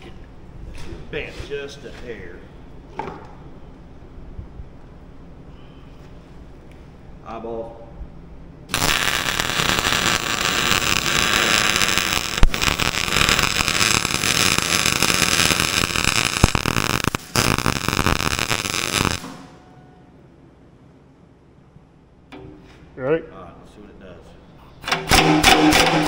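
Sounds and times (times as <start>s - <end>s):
arc welding crackle: 8.7s - 19.6s.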